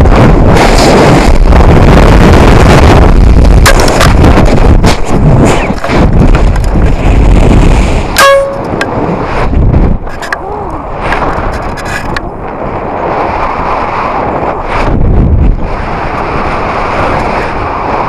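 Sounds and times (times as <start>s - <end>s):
wind buffeting microphone: 0.0s - 18.0s
brief beep: 8.2s - 8.6s.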